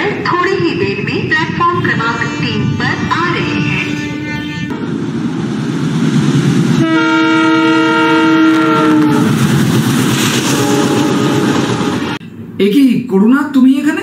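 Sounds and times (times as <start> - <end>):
train rumble: 0.0 - 12.7
train horn: 1.9 - 4.9, 6.8 - 9.4, 10.4 - 12.2.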